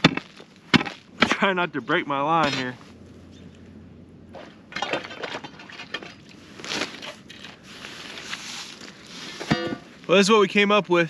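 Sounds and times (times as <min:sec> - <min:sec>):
ice and slush crunching: 0:05.1 - 0:09.4.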